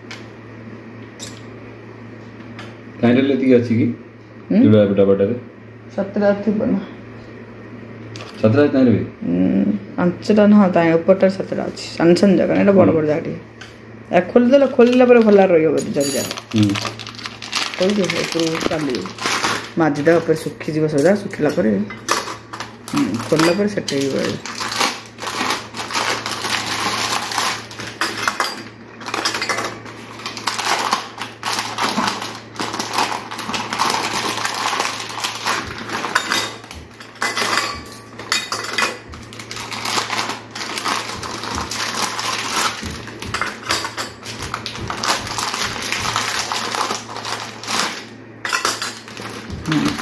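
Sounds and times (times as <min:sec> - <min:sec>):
kitchen containers and utensils clattering: 0:15.8 - 0:50.0.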